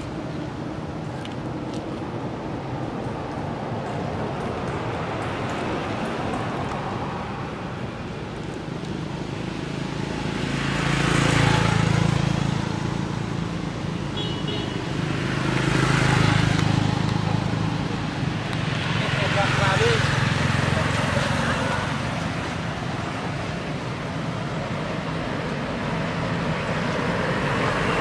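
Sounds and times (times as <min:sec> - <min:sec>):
motor vehicles passing: 0:00.0 - 0:28.0
steady traffic hum: 0:00.0 - 0:28.0.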